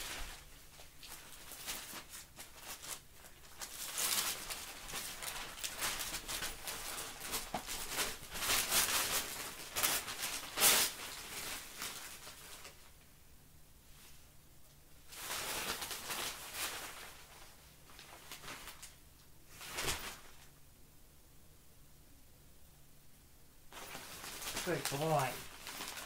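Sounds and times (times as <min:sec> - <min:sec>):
newspaper rustling and crinkling: 0:00.0 - 0:12.9, 0:15.1 - 0:20.5, 0:23.7 - 0:26.0.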